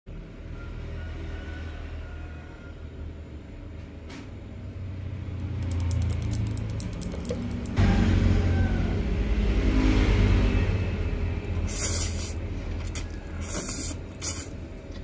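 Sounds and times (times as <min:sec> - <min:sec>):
faint high ticks: 0:05.4 - 0:07.8.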